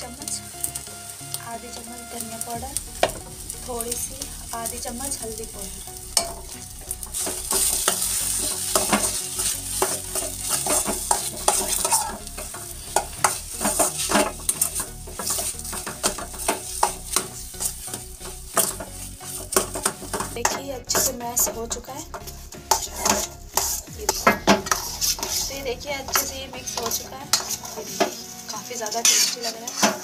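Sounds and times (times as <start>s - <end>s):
hot oil sizzling: 0.0s - 30.0s
metal spatula scraping a pan: 0.0s - 30.0s.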